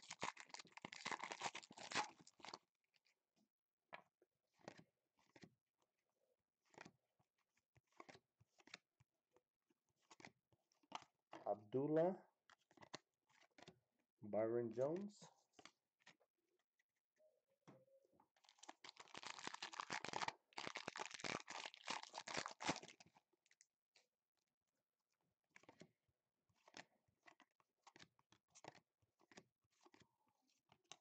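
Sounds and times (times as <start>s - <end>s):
foil wrapper tearing and crinkling: 0.0s - 2.6s, 18.4s - 23.1s
cards rustling and clicking: 4.5s - 5.5s, 6.6s - 7.0s, 7.8s - 8.8s, 10.0s - 11.1s, 12.5s - 13.8s, 26.6s - 31.0s.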